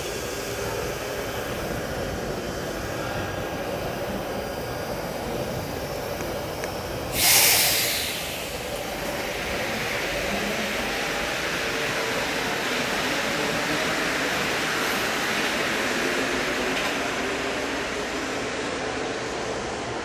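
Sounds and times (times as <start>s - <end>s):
train rumbling: 0.0s - 20.0s
hiss of released air: 7.0s - 10.1s.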